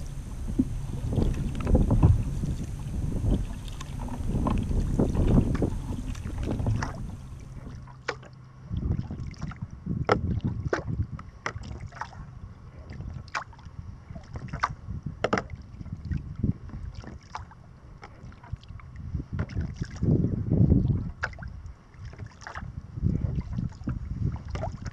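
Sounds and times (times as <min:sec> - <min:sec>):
wind buffeting microphone: 0:00.0 - 0:07.9, 0:08.6 - 0:17.2, 0:17.8 - 0:24.9
paddle blades splashing: 0:00.0 - 0:20.0, 0:21.1 - 0:24.9
water lapping at hull: 0:00.0 - 0:24.9.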